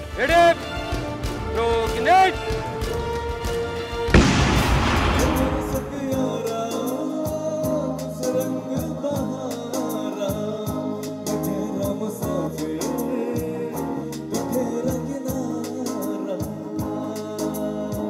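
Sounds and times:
bass guitar: 0.0s - 18.0s
drum beat: 4.2s - 6.6s
person singing: 5.2s - 18.0s.

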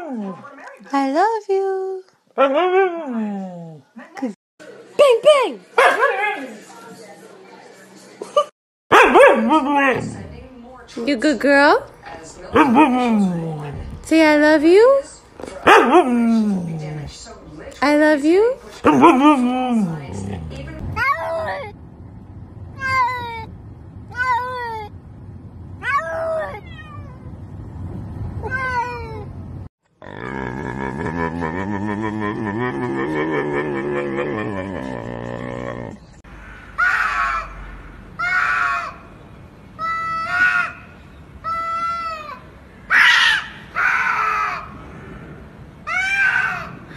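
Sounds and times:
cats yowling: 25.8s - 27.3s, 41.4s - 44.7s, 45.9s - 46.8s
cat meowing: 25.8s - 27.4s.

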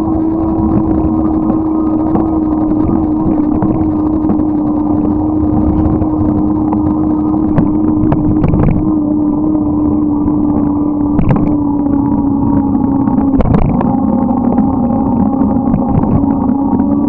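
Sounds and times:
motorbike engine drone: 0.0s - 17.0s.

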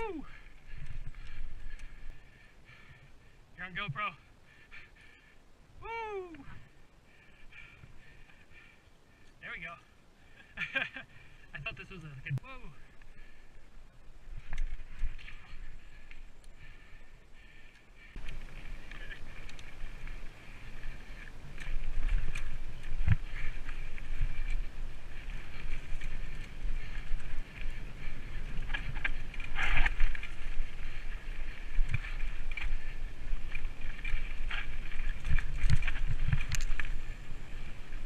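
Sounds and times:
bike tyre rumble: 12.5s - 38.0s
wind noise: 14.0s - 38.0s
bike chain and frame rattling: 17.5s - 38.0s.

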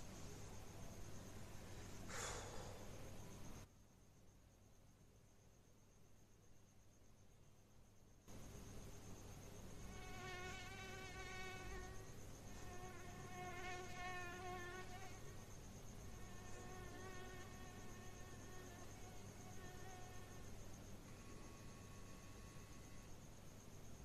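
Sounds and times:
mosquito buzzing: 9.8s - 15.4s, 16.0s - 23.2s.

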